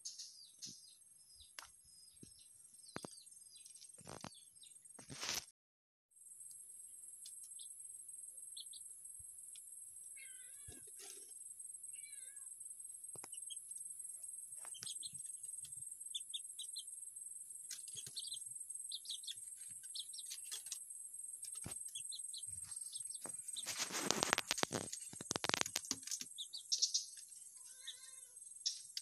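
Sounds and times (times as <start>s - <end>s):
high bird chirps: 13.1s - 13.8s, 14.5s - 17.0s, 17.6s - 29.0s.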